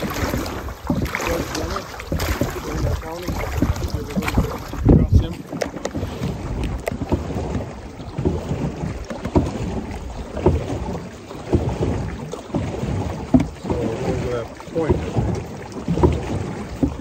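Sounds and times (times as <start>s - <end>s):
water washing along canoe: 0.0s - 17.0s
wind buffeting microphone: 0.0s - 17.0s.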